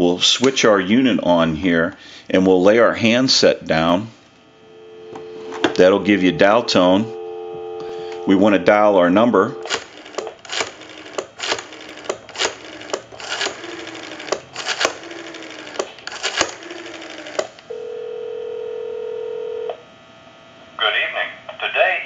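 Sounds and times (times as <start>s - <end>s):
ringback tone: 4.7s - 9.7s
dial pulses clicking: 5.0s - 17.7s
rotary phone dial turning: 9.6s - 17.6s.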